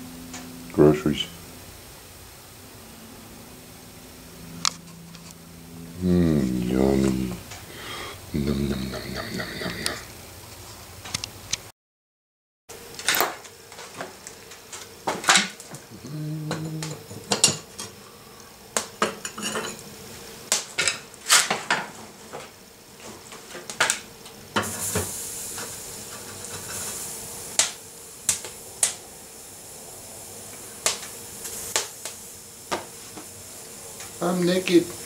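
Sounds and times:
metal clanks and scrapes: 19.2s - 19.8s.

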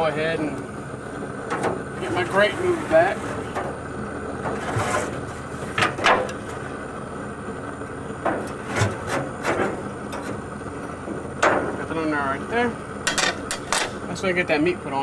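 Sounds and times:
metal scrapes and knocks: 4.4s - 6.4s.

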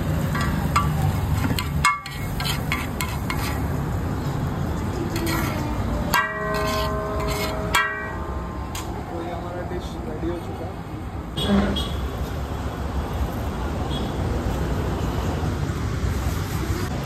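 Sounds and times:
low street background hum: 0.0s - 17.0s
metal spatula scraping a pan: 0.4s - 3.8s, 5.1s - 8.9s
ringing metal clang: 6.1s - 9.2s.

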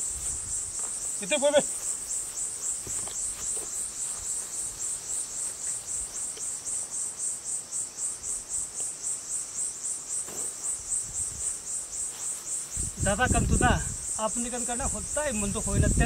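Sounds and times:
insects chorus pulsing: 0.0s - 16.0s.

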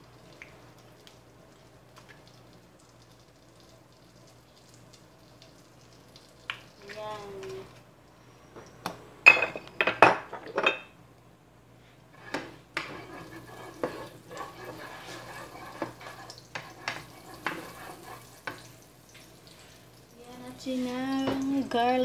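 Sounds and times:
faint sizzle: 0.0s - 22.0s
spatula scraping in frying pan: 12.1s - 19.9s.

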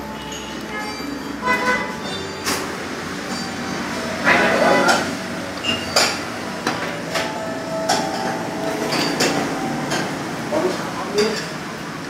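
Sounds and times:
background din: 0.0s - 11.7s
dishes and utensils clinking: 0.0s - 12.0s.

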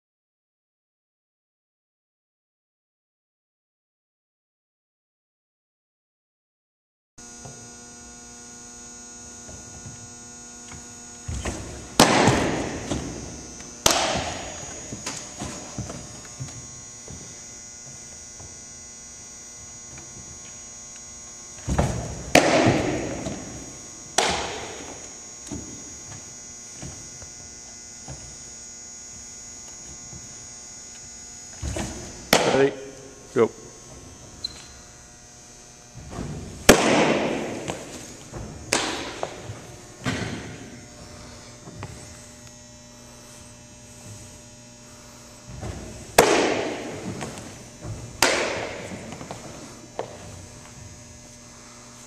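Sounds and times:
electrical hum: 7.2s - 52.0s
ball popping into mitt: 13.8s - 16.0s.

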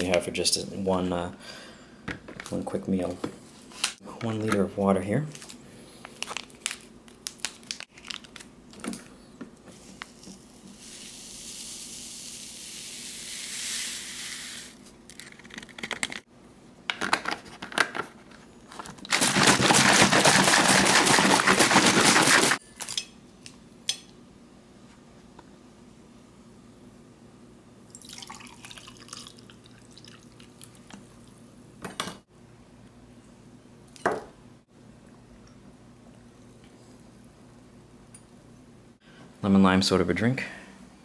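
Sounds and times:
plastic packet crinkling and tearing: 5.3s - 8.5s, 19.0s - 22.6s
bottle shaken hard: 19.1s - 22.6s
powder pouring into bottle: 19.1s - 22.6s.

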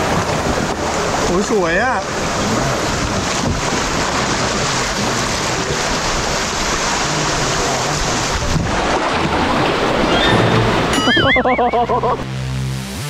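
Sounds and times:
wind buffeting microphone: 0.0s - 11.3s
river water rushing over rapids: 0.0s - 12.3s.

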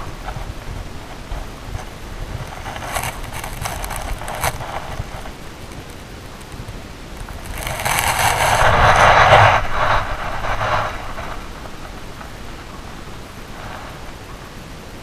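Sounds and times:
camera scraping against rock: 1.8s - 6.6s, 7.2s - 12.0s.

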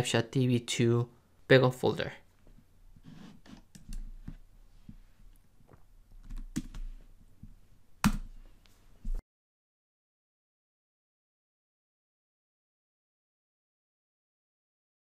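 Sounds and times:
keyboard and mouse clicks: 3.4s - 4.4s, 5.7s - 6.9s, 8.0s - 8.3s.

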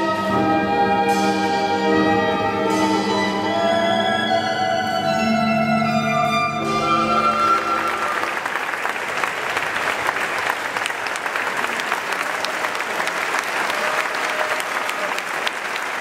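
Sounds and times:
ensemble music with violin: 0.0s - 8.2s
audience applauding: 7.1s - 16.0s.

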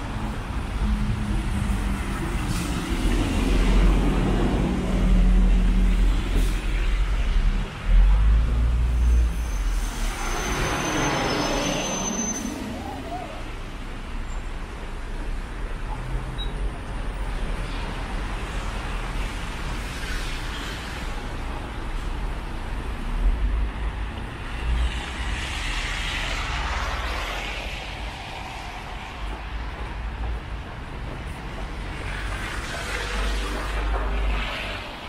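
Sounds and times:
traffic rumble on wet street: 0.0s - 35.0s.

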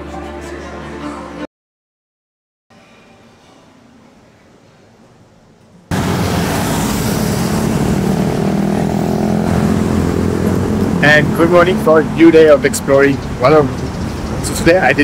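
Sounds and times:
motorbikes and cars passing: 5.9s - 15.0s.

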